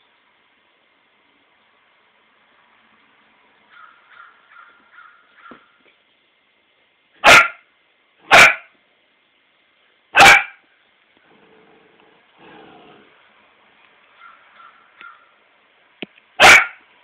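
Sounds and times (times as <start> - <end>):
puppy barking: 7.2 - 7.6, 8.2 - 8.7, 10.2 - 10.6, 16.4 - 16.8.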